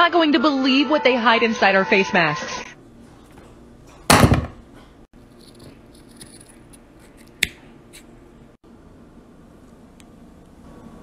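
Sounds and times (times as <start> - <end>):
scissors cutting face mask: 5.3 - 8.1
scissors snipping: 5.4 - 8.1.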